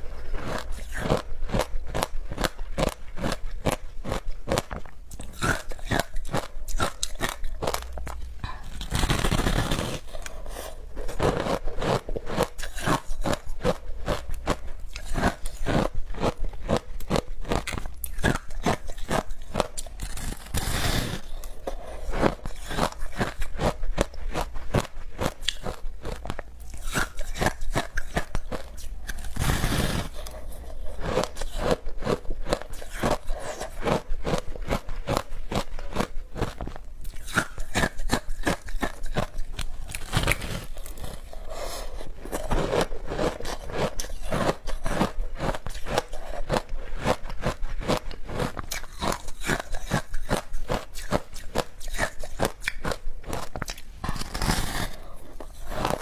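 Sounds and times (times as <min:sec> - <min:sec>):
crunching shaved ice: 0:00.4 - 0:21.4, 0:37.2 - 0:56.0.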